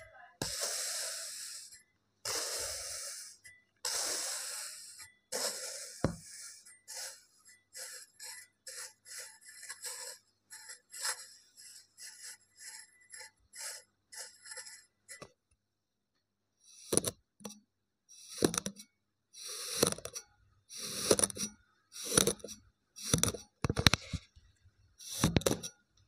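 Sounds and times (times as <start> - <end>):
fork scraping sand: 0.4 - 15.2, 19.4 - 23.5, 25.0 - 25.7.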